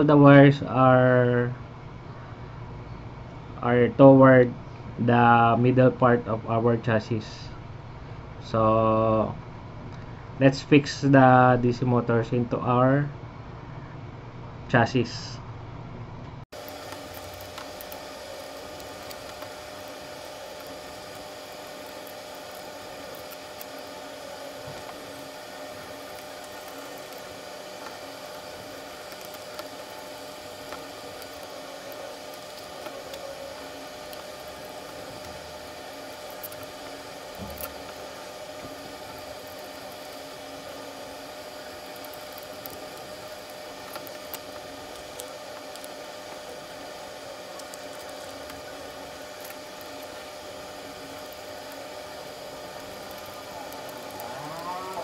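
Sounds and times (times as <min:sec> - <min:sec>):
faint hum tone: 0:00.0 - 0:55.0.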